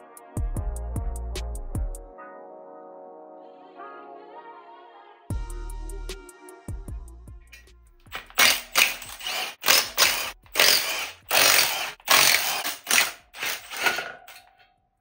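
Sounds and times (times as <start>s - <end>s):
impact wrench hammering bolts: 7.6s - 14.6s.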